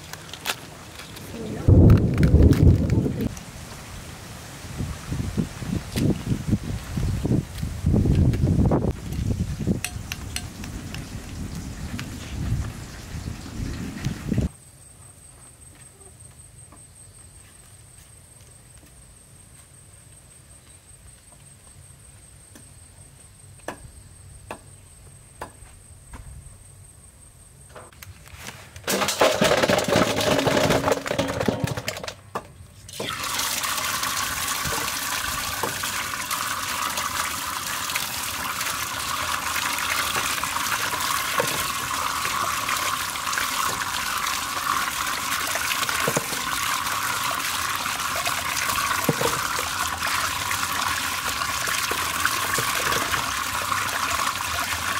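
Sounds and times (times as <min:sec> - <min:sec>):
water pouring into a bowl: 0:33.0 - 0:54.9.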